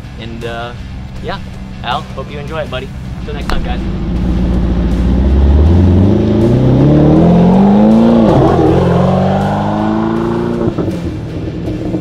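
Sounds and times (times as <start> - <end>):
sports car engine accelerating: 2.6 - 12.0.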